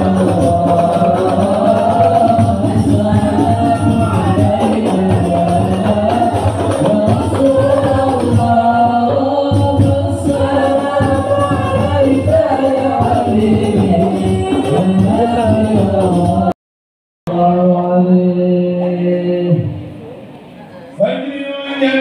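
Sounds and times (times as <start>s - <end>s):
frame drums beating: 0.0s - 16.5s
devotional singing: 0.0s - 16.6s, 17.3s - 19.9s, 21.0s - 22.0s.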